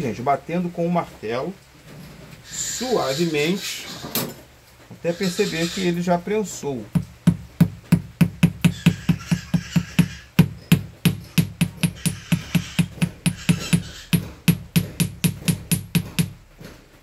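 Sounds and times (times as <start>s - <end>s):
hammer tapping on metal: 6.9s - 16.8s.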